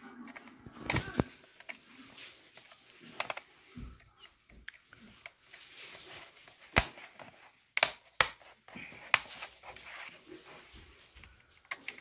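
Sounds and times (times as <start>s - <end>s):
soft handling rustle: 0.0s - 12.0s.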